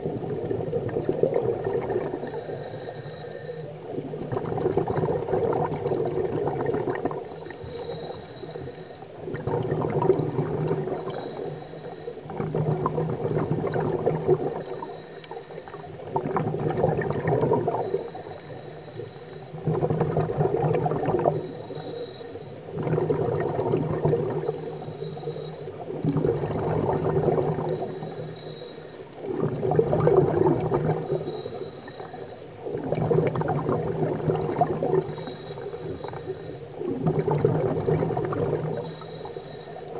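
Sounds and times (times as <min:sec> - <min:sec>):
regulator bubbling exhalations: 0:00.0 - 0:39.9
inhalations through regulator: 0:02.2 - 0:03.8, 0:07.4 - 0:09.1, 0:21.3 - 0:22.7, 0:27.7 - 0:29.1, 0:31.1 - 0:32.4, 0:38.8 - 0:39.9.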